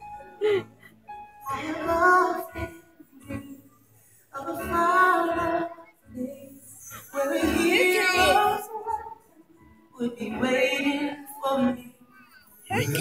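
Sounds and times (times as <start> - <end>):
high singing voice: 10.4 - 13.0.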